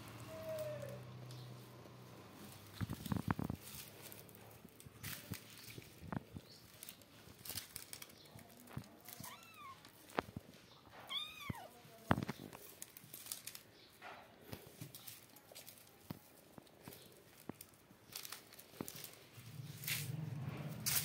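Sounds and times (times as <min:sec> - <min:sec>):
rustling and light knocks: 0:00.8 - 0:21.0
kitten meowing: 0:09.2 - 0:09.9, 0:11.0 - 0:11.8.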